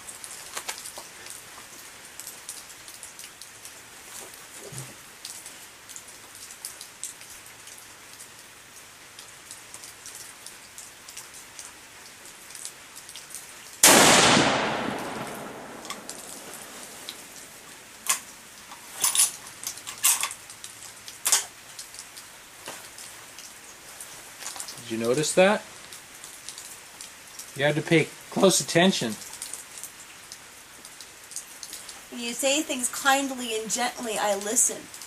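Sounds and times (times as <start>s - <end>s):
rifle shot: 13.8s - 16.7s.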